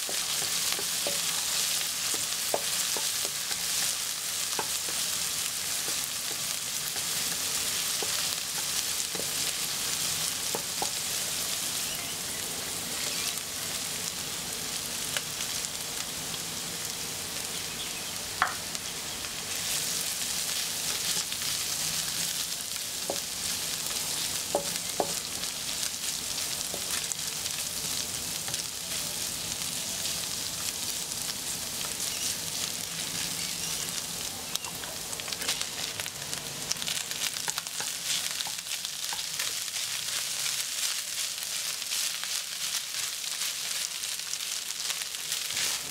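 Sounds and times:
food sizzling in a pan: 0:00.0 - 0:45.9.

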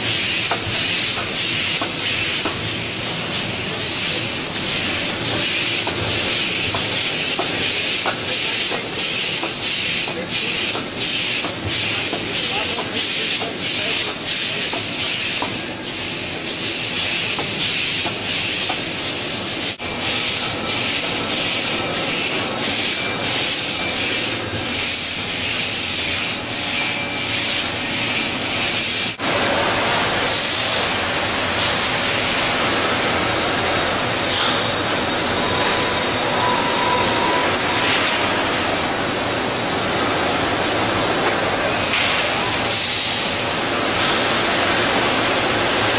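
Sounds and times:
loud hissing machinery noise: 0:00.0 - 0:45.9.

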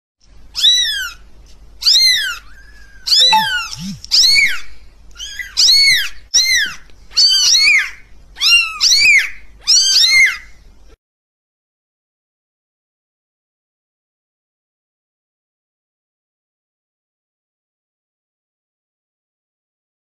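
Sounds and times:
kitten meowing: 0:01.8 - 0:04.5.

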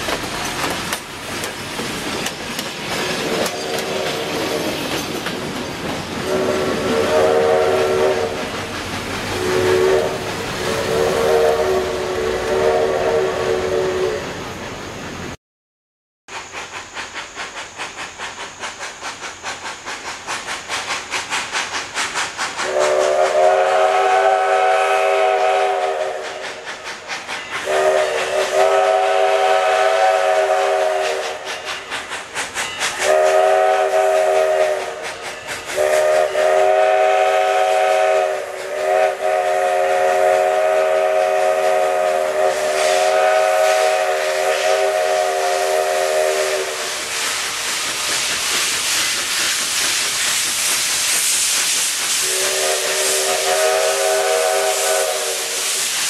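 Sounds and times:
steam locomotive chuffing: 0:00.0 - 0:15.4, 0:16.3 - 0:56.0
steam whistle blasts: 0:03.2 - 0:04.8, 0:06.2 - 0:08.7, 0:09.3 - 0:14.4, 0:22.6 - 0:26.8, 0:27.6 - 0:31.9, 0:32.8 - 0:47.3, 0:52.2 - 0:56.0.

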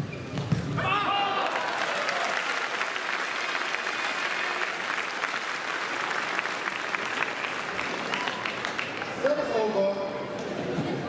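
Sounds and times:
crowd applauding: 0:01.2 - 0:09.5.

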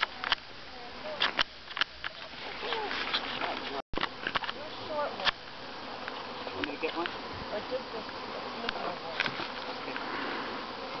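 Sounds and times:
bee swarm buzzing: 0:00.0 - 0:11.0.

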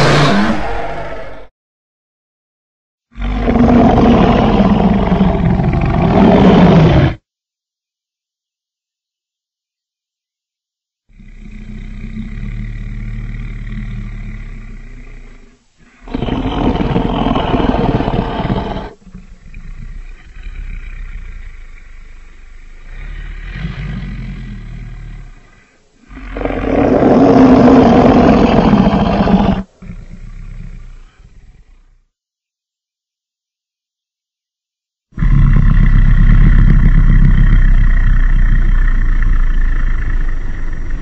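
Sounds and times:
loud dinosaur roar: 0:00.0 - 0:01.5, 0:03.2 - 0:07.2, 0:11.2 - 0:25.5, 0:26.1 - 0:31.2, 0:35.2 - 0:41.0
low growl: 0:00.0 - 0:01.5, 0:03.2 - 0:07.2, 0:11.1 - 0:32.1, 0:35.2 - 0:41.0.

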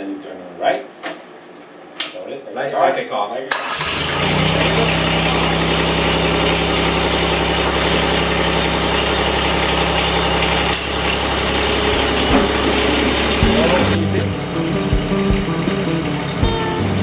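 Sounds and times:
diesel tractor engine idling: 0:03.7 - 0:14.4.

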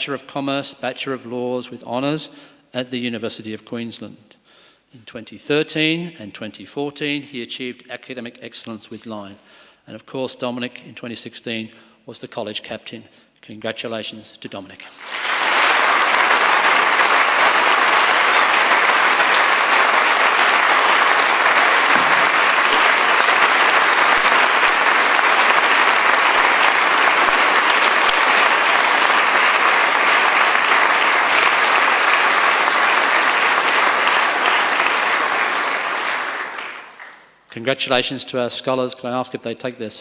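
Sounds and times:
large audience clapping: 0:14.9 - 0:37.4.

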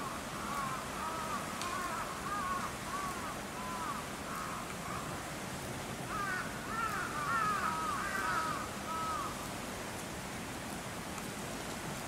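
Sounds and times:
steady outdoor hiss: 0:00.0 - 0:12.0
crow cawing: 0:00.4 - 0:05.1, 0:06.1 - 0:09.4.

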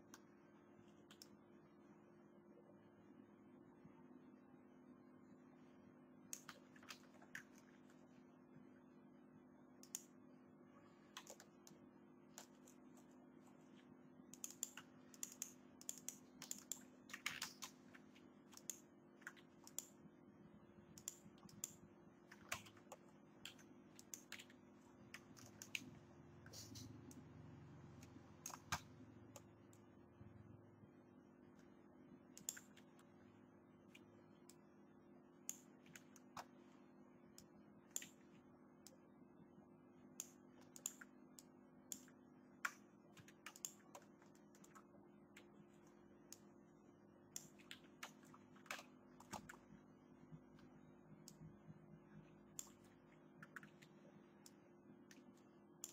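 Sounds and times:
faint steady hum: 0:00.0 - 0:55.9
keyboard and mouse clicks: 0:01.0 - 0:01.3, 0:06.3 - 0:07.7, 0:09.8 - 0:10.1, 0:11.1 - 0:11.8, 0:12.4 - 0:13.1, 0:14.3 - 0:20.0, 0:20.9 - 0:27.2, 0:28.0 - 0:29.8, 0:32.4 - 0:33.1, 0:37.4 - 0:39.0, 0:40.2 - 0:46.5, 0:47.4 - 0:49.7, 0:52.5 - 0:55.9.

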